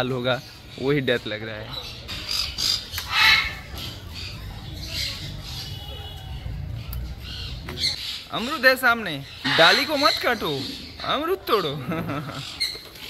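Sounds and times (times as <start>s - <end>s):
cockatoo squawking: 2.2s - 8.2s, 9.2s - 11.7s.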